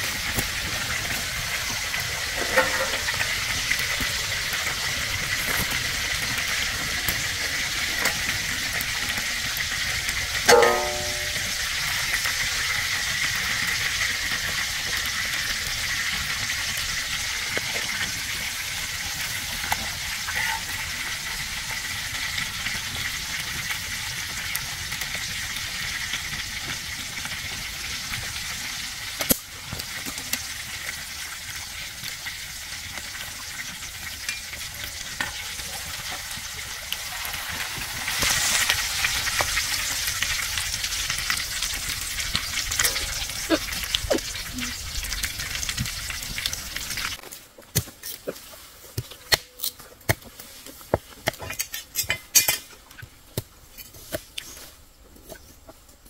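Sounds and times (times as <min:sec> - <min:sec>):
food sizzling in a pan: 0:00.0 - 0:49.1.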